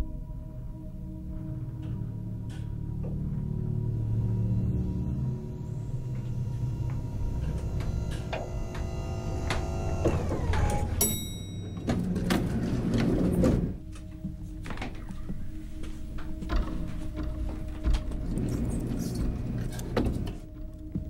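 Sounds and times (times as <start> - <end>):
eerie music: 0.0 - 21.0
sliding lift doors rumbling: 6.0 - 13.9, 16.0 - 20.5
bright chime: 11.0 - 12.0.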